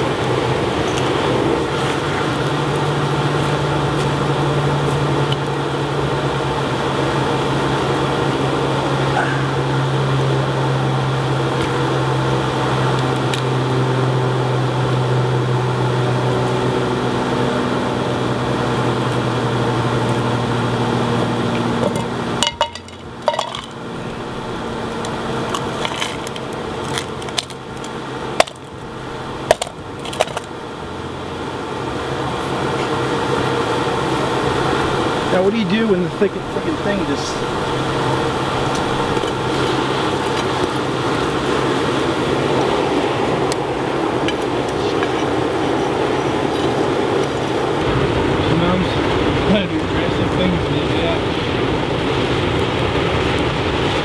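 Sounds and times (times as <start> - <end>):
air blower humming: 0.0 - 53.9
metallic clinks and knocks: 21.8 - 23.8.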